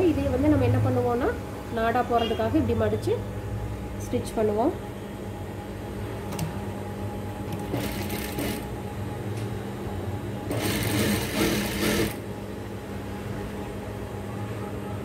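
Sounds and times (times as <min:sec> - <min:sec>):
steady low hum: 0:00.0 - 0:15.0
sewing machine stitching: 0:07.5 - 0:08.7, 0:10.5 - 0:12.2.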